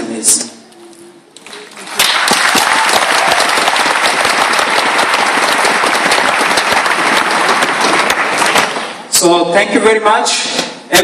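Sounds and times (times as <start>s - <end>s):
large crowd applauding: 1.4s - 9.0s.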